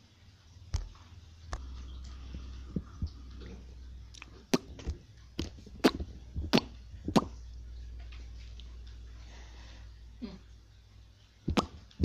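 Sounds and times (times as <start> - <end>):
low steady hum: 0.0 - 12.0
slime popping and clicking: 11.5 - 11.8.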